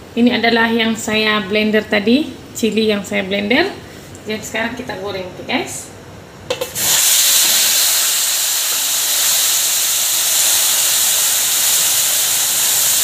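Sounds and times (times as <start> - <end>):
paste sizzling in hot oil: 6.6 - 13.0.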